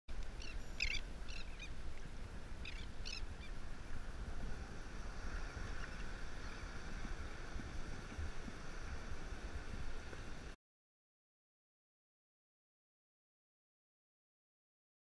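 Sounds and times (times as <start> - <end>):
wind rumbling on microphone: 0.1 - 10.6
bird calls: 0.4 - 1.8, 2.6 - 3.6
breaking surf hiss: 3.4 - 10.6.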